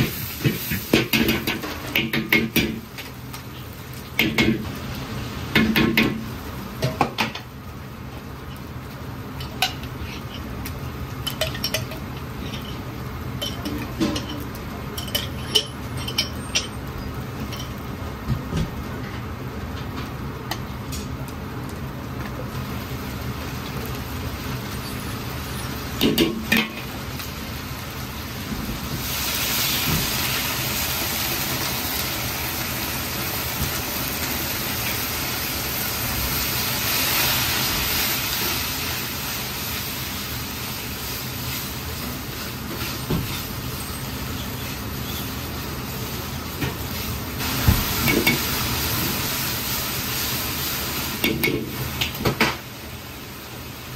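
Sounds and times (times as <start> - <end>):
food sizzling in a wok: 0.0 - 19.6, 20.2 - 53.9.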